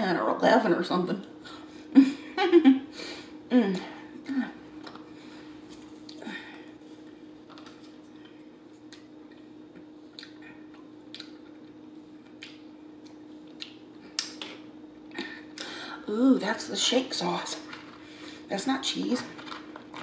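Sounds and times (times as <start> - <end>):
faint steady hum: 0.0 - 20.0
chewing and mouth smacks: 5.7 - 6.2, 7.4 - 14.7.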